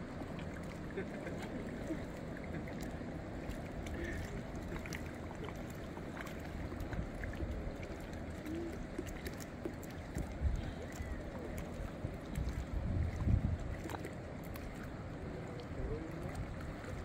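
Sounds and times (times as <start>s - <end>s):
small waves on water: 0.0s - 17.0s
wind on microphone: 10.0s - 17.0s.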